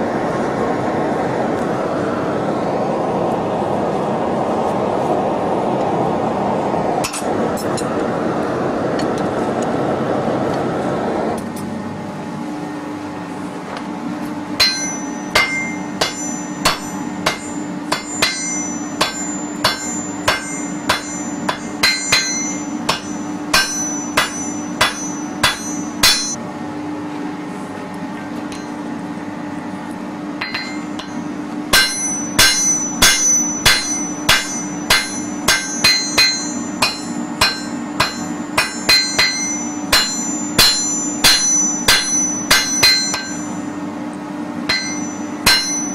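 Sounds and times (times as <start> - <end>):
steady hum: 0.0 - 45.9
hammer ringing on anvil: 14.6 - 26.4, 30.4 - 43.6, 44.7 - 45.9.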